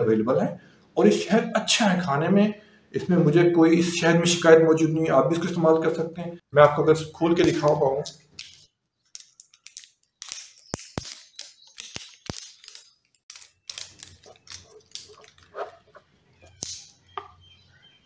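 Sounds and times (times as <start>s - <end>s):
plastic seal crackling and crinkling: 9.2s - 17.0s.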